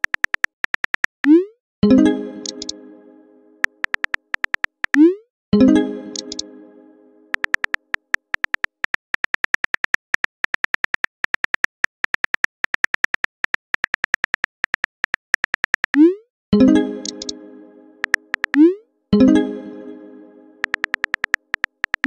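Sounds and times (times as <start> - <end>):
keyboard click sound effects: 0.0 - 2.9, 3.6 - 6.5, 7.3 - 13.0, 15.4 - 19.5, 20.6 - 22.0
chime: 1.8 - 3.6, 5.6 - 7.3, 16.6 - 18.0, 19.2 - 20.6.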